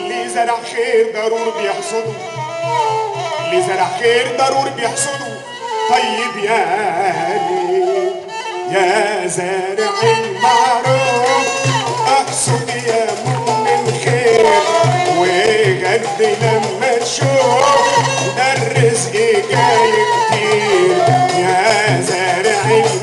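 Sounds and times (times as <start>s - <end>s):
bowed fiddles: 0.0s - 23.0s
flute melody: 0.0s - 23.0s
man singing: 0.0s - 23.0s
hand drum rhythm: 1.3s - 6.1s, 9.8s - 23.0s.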